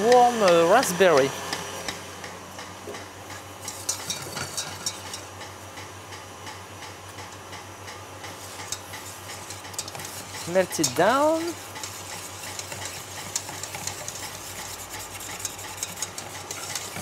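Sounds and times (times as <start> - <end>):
whisk clicking against metal bowl: 0.0 - 1.3, 3.6 - 5.2, 8.2 - 17.0
steady low hum: 1.0 - 17.0.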